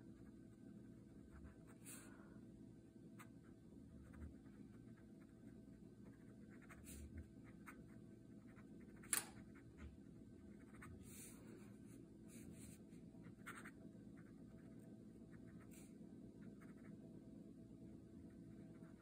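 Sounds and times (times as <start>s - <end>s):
fountain pen scratching on paper: 6.0s - 7.8s.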